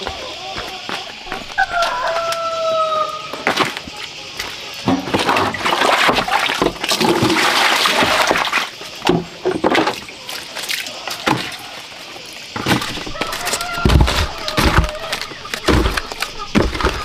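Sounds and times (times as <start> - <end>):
water splashing onto concrete: 5.1 - 8.8
water pouring into basin: 5.3 - 8.7.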